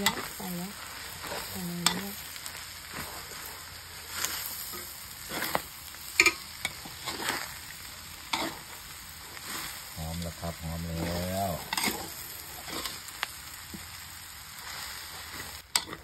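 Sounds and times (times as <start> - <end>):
spatula scraping and clanking on pan: 0.0 - 10.0, 10.8 - 14.0, 14.6 - 16.0
meat sizzling in a wok: 0.0 - 16.0.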